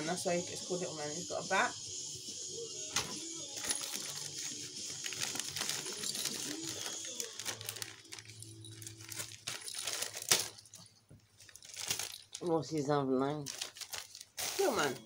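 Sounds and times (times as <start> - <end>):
packaging crinkling: 3.0 - 12.5, 13.4 - 15.0.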